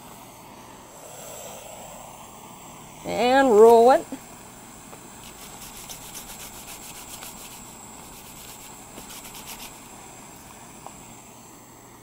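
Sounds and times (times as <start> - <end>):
cardboard rasping: 5.2 - 9.8.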